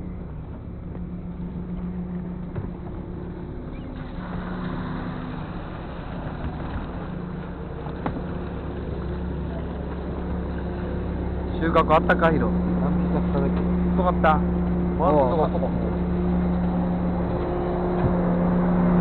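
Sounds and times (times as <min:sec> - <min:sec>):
boat engine running: 0:00.0 - 0:19.0
water and wind hiss: 0:02.7 - 0:16.0.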